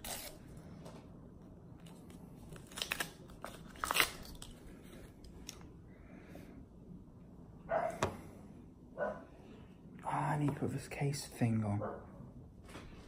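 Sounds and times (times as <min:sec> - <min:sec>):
wet-wipe sachet tearing and crinkling: 0:01.8 - 0:04.7.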